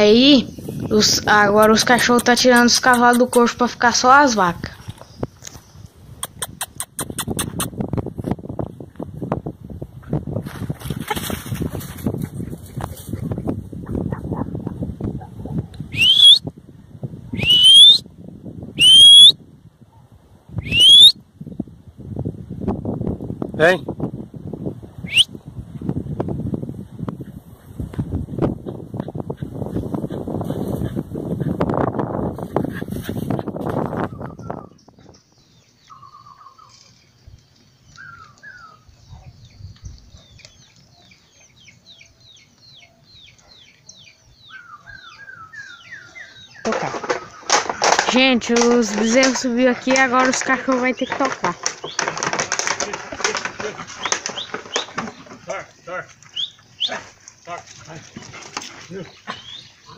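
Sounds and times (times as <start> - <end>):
birds chirping: 0.0 - 7.8, 32.4 - 59.9
person whistling: 15.9 - 16.4, 17.4 - 18.0, 18.8 - 19.4, 20.6 - 21.2, 25.1 - 25.3
bird warbling: 35.8 - 36.8.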